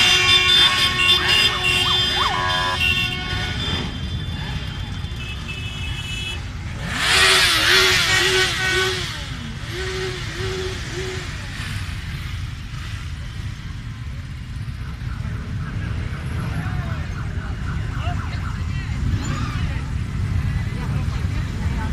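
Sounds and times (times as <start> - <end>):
horn short repeated notes: 0.0 - 11.4
motorcycle engines rumbling: 0.0 - 21.9.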